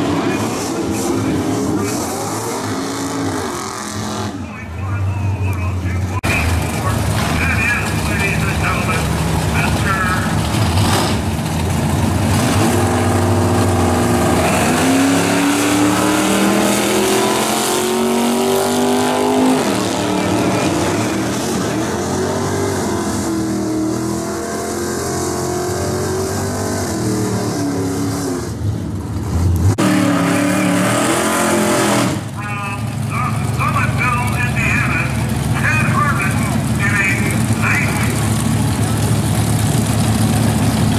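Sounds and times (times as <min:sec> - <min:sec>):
cars accelerating at full throttle: 0:00.0 - 0:40.9
engine running steadily close by: 0:04.4 - 0:24.3, 0:31.8 - 0:40.9.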